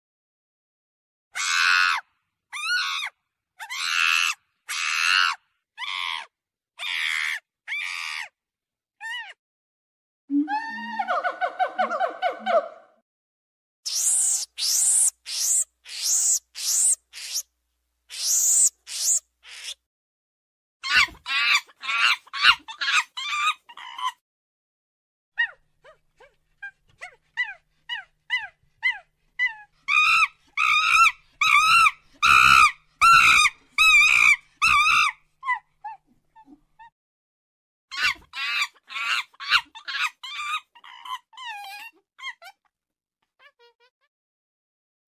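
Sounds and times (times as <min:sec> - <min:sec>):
monkey squealing and chattering: 0:02.6 - 0:06.2, 0:09.0 - 0:09.4, 0:13.9 - 0:17.5, 0:18.1 - 0:19.8, 0:20.8 - 0:24.2, 0:26.2 - 0:36.9, 0:37.9 - 0:42.6.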